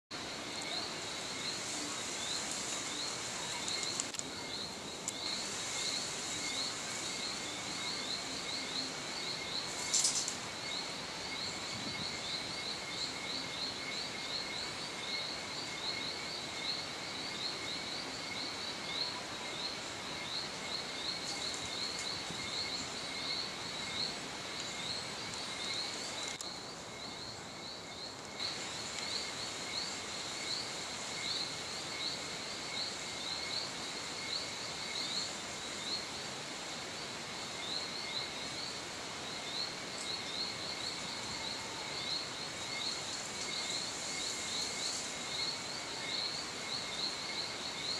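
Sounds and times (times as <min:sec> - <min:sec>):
insects chirping: 0:00.1 - 0:47.9
insect high trill: 0:00.5 - 0:16.8.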